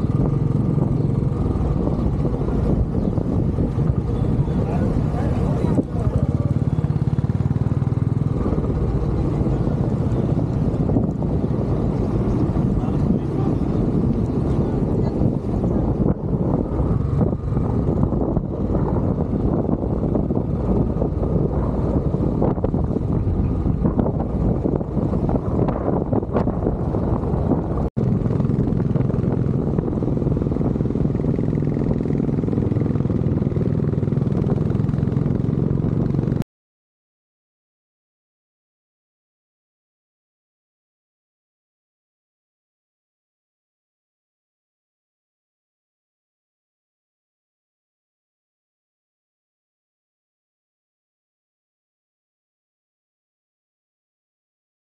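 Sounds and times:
motorcycle engine running: 0.0 - 36.4.

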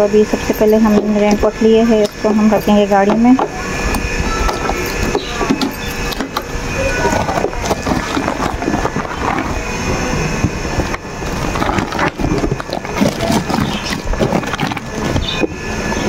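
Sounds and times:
plastic bag crinkling: 10.6 - 15.4.

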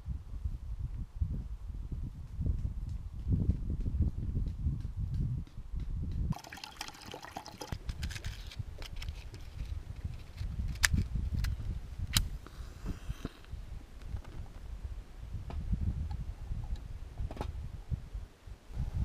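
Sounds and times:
water dripping and trickling: 6.3 - 7.8.

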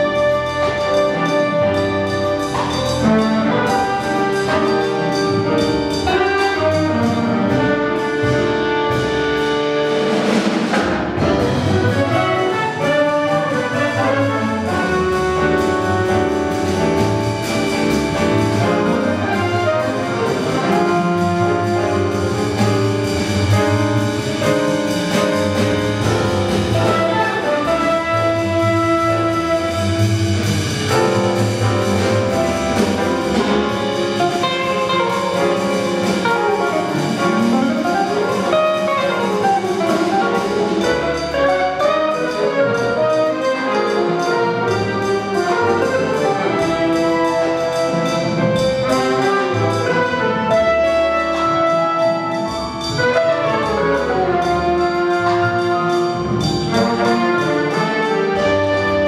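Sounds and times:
drum kit with cymbals: 0.0 - 59.0
piano: 0.0 - 59.0
trumpet: 0.0 - 59.0
walking upright bass: 0.0 - 59.0.

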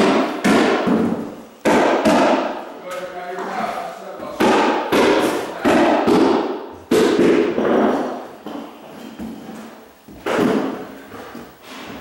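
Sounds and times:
hammer striking nails: 0.0 - 2.6, 4.4 - 8.6.

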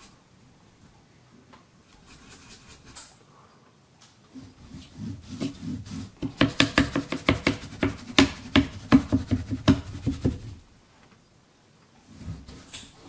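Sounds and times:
paintbrush strokes on canvas: 1.9 - 3.0, 4.3 - 10.6.

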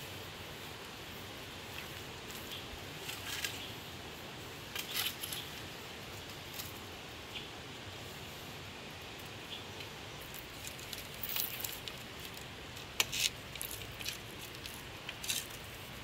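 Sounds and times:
steady background hiss: 0.0 - 16.0
bamboo sticks clicking and scraping: 1.7 - 3.8, 4.6 - 6.8, 9.2 - 16.0.

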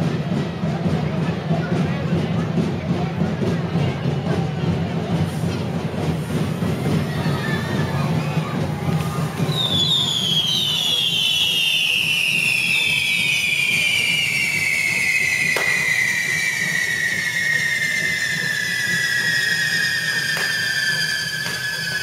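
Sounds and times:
fireworks whistling down in pitch: 4.7 - 22.0
sharp firework crack: 6.0 - 22.0.

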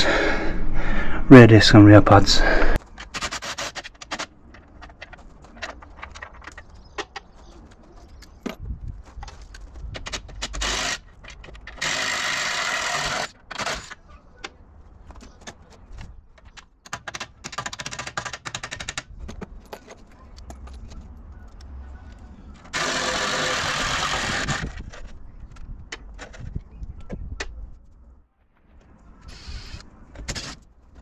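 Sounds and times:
metal parts clicking and jangling: 3.0 - 11.8, 19.1 - 22.7.

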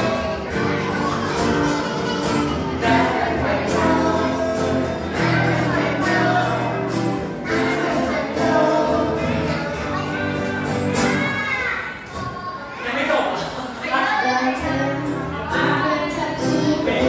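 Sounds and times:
people singing into microphones: 0.0 - 10.7
keyboard: 0.0 - 11.8
acoustic guitar: 0.0 - 17.0.

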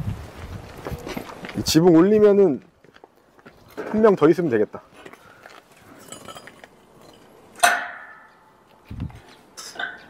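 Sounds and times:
metallic clank: 6.0 - 8.4.

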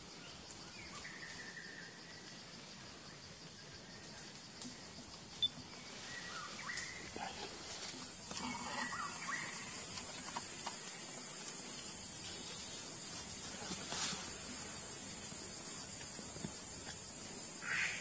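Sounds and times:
forest insects droning: 0.0 - 18.0.

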